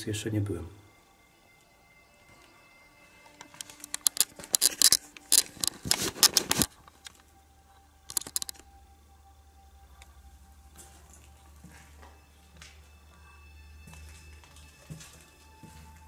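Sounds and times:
footsteps crunching on debris: 10.7 - 13.2, 13.8 - 16.0.

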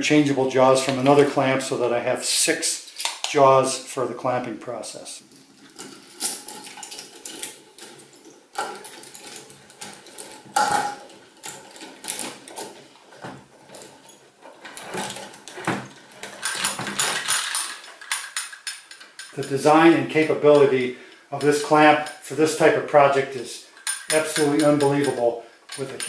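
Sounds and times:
metal clamp clicking and clinking: 5.6 - 12.8, 13.7 - 19.7, 23.8 - 26.0.

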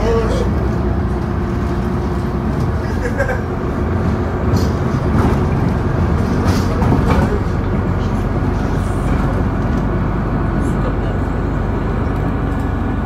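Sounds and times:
bus engine and road rumble: 0.0 - 13.0.

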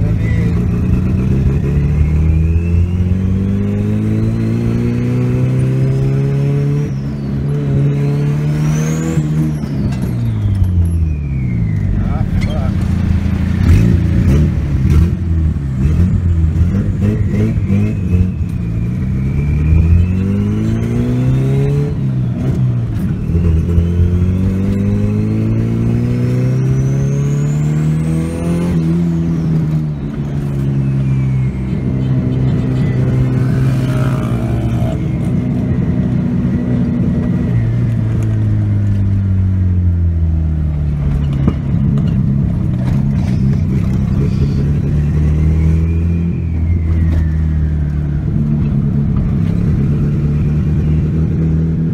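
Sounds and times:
car engine accelerating: 0.0 - 51.9
high turbo whistle: 17.0 - 22.0, 26.6 - 35.4, 44.2 - 48.3.

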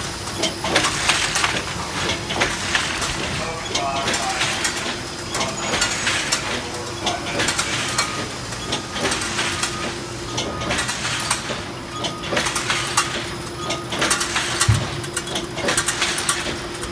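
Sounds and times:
machine hum: 0.0 - 16.9.

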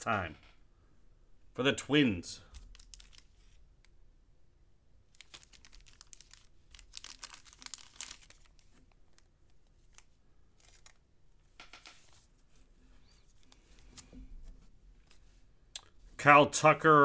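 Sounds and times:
packaging crinkling and rustling: 2.6 - 3.9, 5.1 - 11.1.

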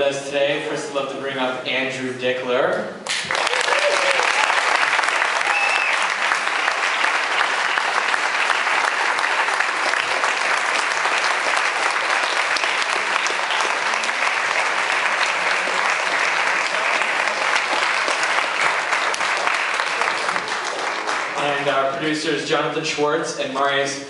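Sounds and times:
audience applauding and cheering: 3.1 - 21.7.

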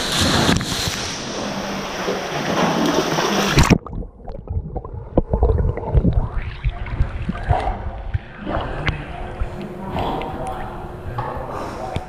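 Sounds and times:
muffled underwater thuds and gurgling: 2.2 - 10.7.

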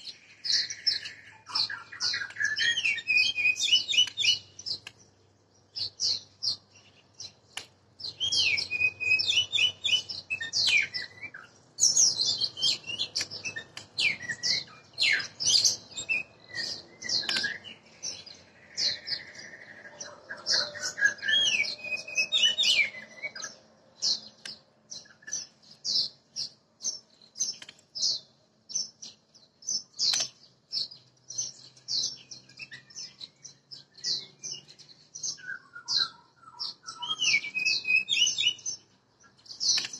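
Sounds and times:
bird singing whistled phrases: 0.5 - 4.8, 8.0 - 24.2, 31.9 - 34.6, 35.3 - 38.8.

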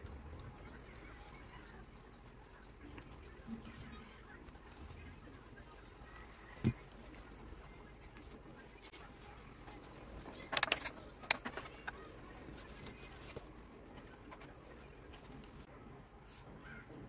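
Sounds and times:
tools clicking and knocking: 10.5 - 11.7.

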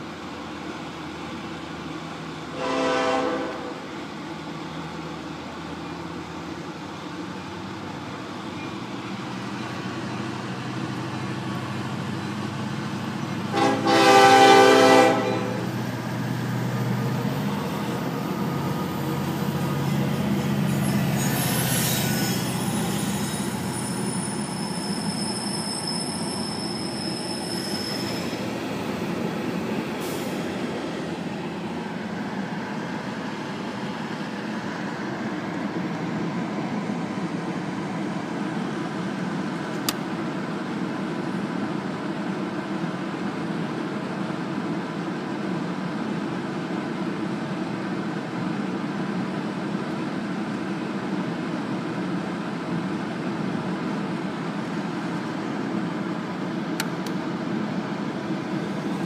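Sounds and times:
steel wheels rumbling on rail: 0.0 - 59.0.

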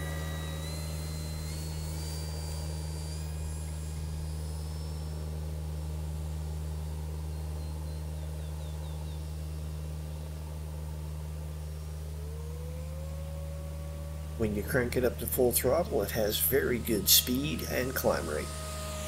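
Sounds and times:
model plane motor whining: 0.0 - 19.0
steady low hum: 0.0 - 19.0.

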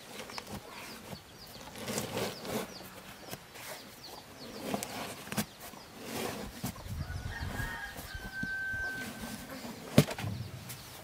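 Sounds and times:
small birds chirping: 0.0 - 11.0
chickens: 0.1 - 11.0
rubber tyre scuffing and rubbing: 0.1 - 11.0.

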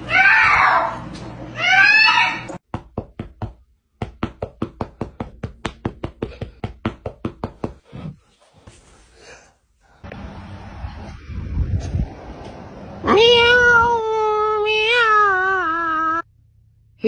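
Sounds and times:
hand drumming on mattress: 2.6 - 7.8.

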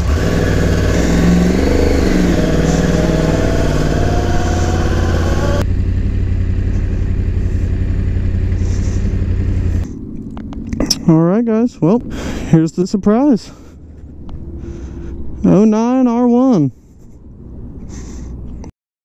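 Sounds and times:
motorcycle engine pulling away: 0.0 - 10.9.

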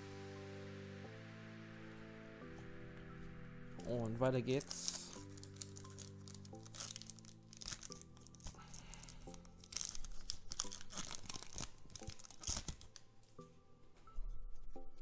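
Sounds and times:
foil pack tearing and crinkling: 4.6 - 13.0.

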